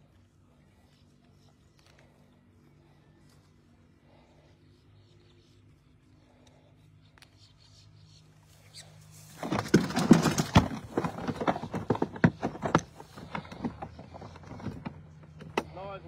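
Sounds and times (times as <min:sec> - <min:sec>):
handling noise on phone microphone: 0:08.4 - 0:15.6.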